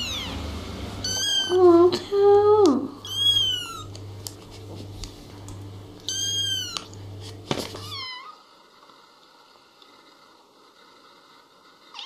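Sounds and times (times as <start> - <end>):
kitten meowing: 0.0 - 0.4, 1.0 - 1.6, 3.0 - 3.9, 6.0 - 6.9
low steady hum: 0.0 - 12.0.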